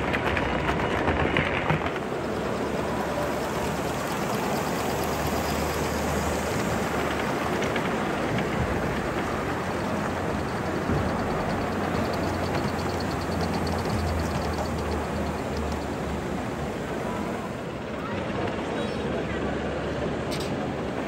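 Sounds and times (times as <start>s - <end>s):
faint rail clicks: 0.0s - 17.6s, 20.2s - 21.0s
model train wheels rolling: 0.0s - 21.0s.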